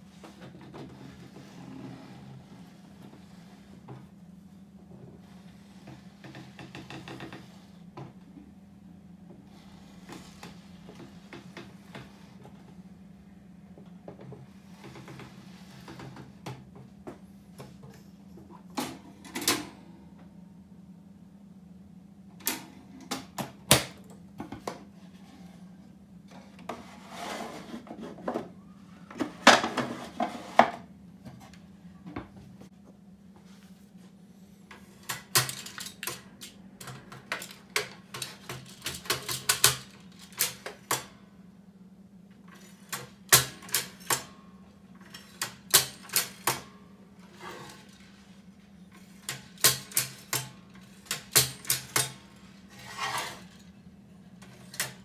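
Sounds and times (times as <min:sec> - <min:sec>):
mechanism clicking and clacking: 0:35.0 - 0:41.2, 0:49.2 - 0:52.5.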